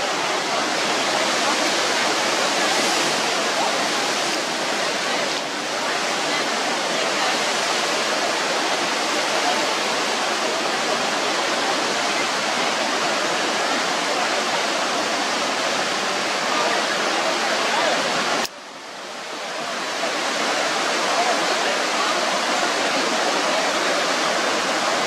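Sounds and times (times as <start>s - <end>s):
floodwater rushing: 0.0s - 25.0s.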